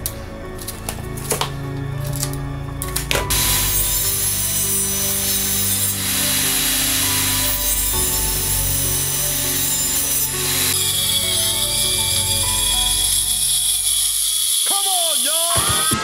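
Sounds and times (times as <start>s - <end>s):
table saw cutting plank: 3.2s - 16.0s.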